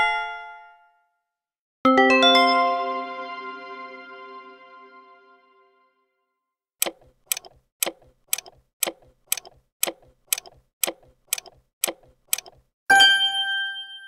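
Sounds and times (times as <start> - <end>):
clock ticking: 6.8 - 12.7.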